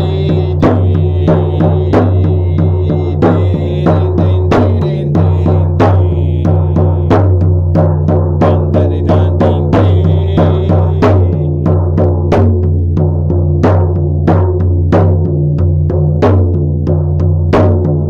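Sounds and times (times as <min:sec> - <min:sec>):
steady drumbeat: 0:00.0 - 0:18.0.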